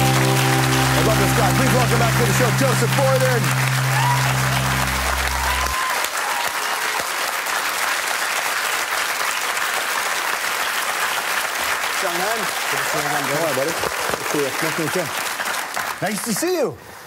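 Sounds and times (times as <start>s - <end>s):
music sting: 0.0s - 5.8s
audience applauding: 0.0s - 16.8s.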